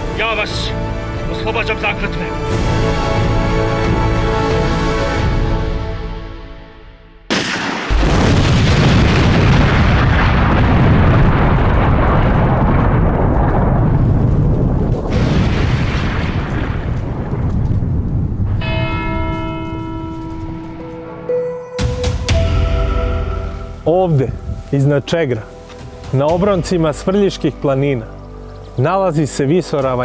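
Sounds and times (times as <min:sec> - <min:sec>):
music: 0:00.0 - 0:07.3, 0:18.6 - 0:30.0
explosion blast and rumble: 0:07.3 - 0:19.2.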